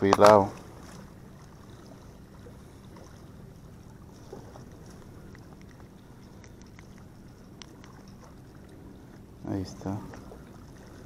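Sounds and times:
low rumble of wind and water: 0:00.0 - 0:11.0.

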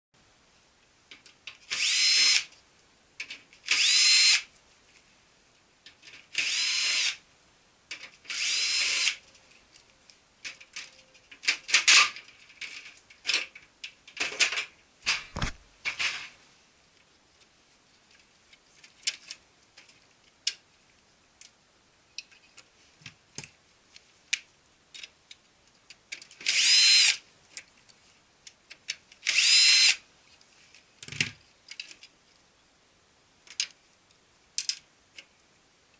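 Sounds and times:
cordless drill motor whining: 0:01.7 - 0:02.4, 0:03.7 - 0:04.4, 0:06.4 - 0:07.2, 0:08.3 - 0:09.2, 0:26.5 - 0:27.2, 0:29.3 - 0:30.0
clicks and knocks of screws: 0:07.9 - 0:08.5, 0:24.3 - 0:29.6, 0:31.0 - 0:32.2, 0:33.4 - 0:33.8, 0:34.6 - 0:35.3.

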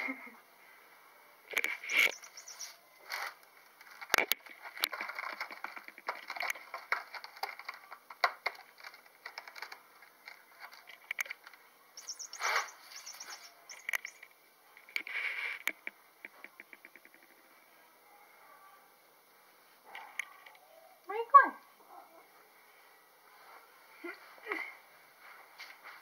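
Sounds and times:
cat toy chirps and squeaks: 0:01.8 - 0:02.8, 0:12.0 - 0:14.2.

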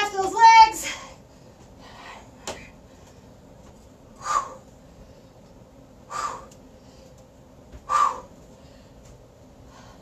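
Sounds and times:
woman exhaling forcefully: 0:04.2 - 0:04.6, 0:06.1 - 0:06.5, 0:07.9 - 0:08.3.

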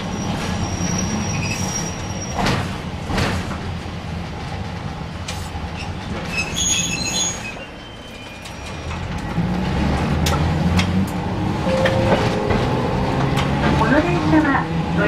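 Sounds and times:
tram motors and wheels rumbling: 0:00.0 - 0:15.0.

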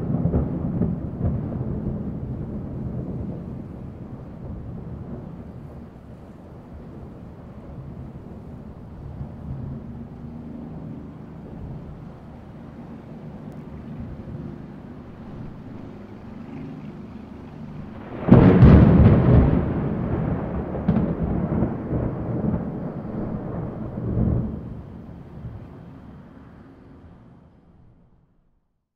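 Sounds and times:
loud thunderclap: 0:00.0 - 0:08.3, 0:17.8 - 0:25.8
distant thunder rumbling: 0:00.0 - 0:27.2.

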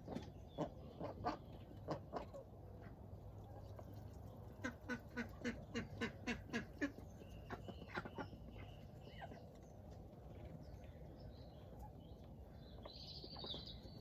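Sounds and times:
duck quacking: 0:04.6 - 0:08.3.

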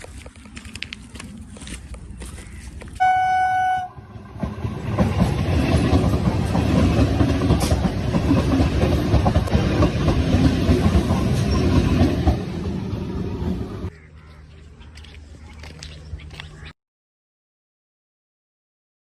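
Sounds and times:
train passing at speed: 0:03.0 - 0:13.9
wheels clattering on rails: 0:04.2 - 0:12.8.

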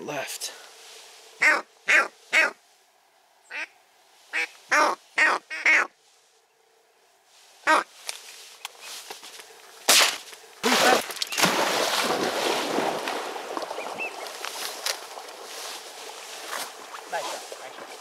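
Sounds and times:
duck call blast: 0:01.4 - 0:02.6, 0:04.3 - 0:05.9, 0:07.6 - 0:07.9.

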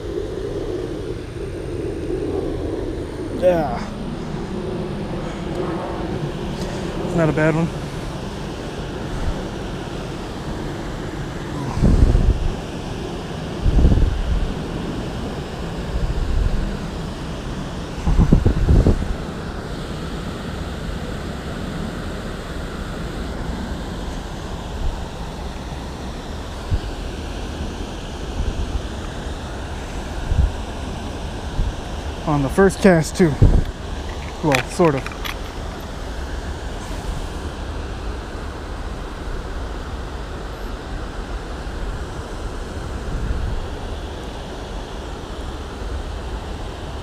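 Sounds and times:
wind buffeting microphone: 0:00.0 - 0:19.4, 0:26.4 - 0:32.2, 0:32.9 - 0:38.1, 0:42.8 - 0:44.0.

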